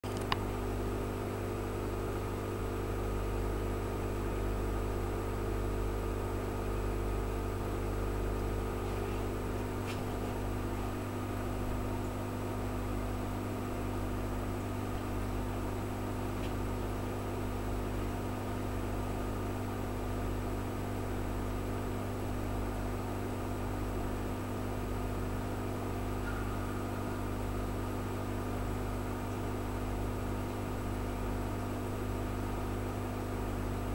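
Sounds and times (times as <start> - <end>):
aquarium pump humming: 0.0 - 33.9.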